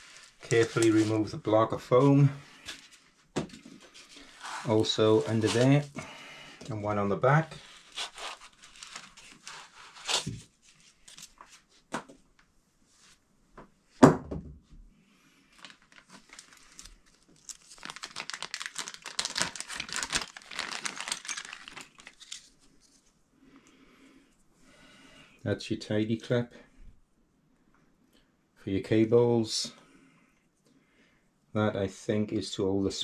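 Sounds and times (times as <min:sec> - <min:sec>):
plastic packaging rustling: 0:00.0 - 0:01.3, 0:02.7 - 0:05.9, 0:07.5 - 0:11.5, 0:15.5 - 0:23.1.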